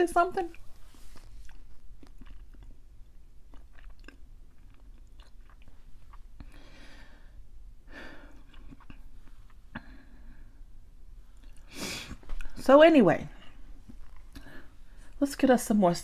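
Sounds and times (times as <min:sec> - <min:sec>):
wet mouth clicks: 0:00.5 - 0:06.6
person chewing food: 0:00.5 - 0:12.6, 0:13.5 - 0:14.7
person breathing: 0:06.4 - 0:08.4, 0:14.3 - 0:15.2.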